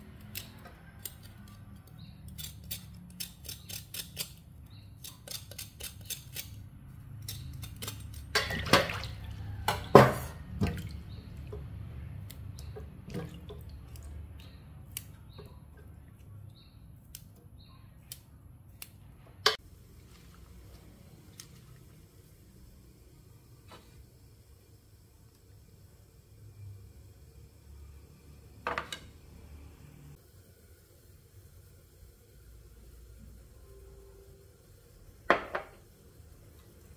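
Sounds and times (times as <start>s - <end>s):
cleaver scraping stems: 0.2s - 6.6s
water splashing and dripping: 8.3s - 15.1s.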